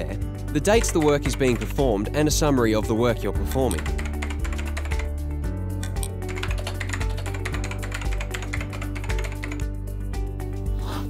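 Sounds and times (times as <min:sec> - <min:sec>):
background music: 0:00.0 - 0:11.0
keyboard typing: 0:00.6 - 0:01.9, 0:03.6 - 0:05.1, 0:05.8 - 0:09.7.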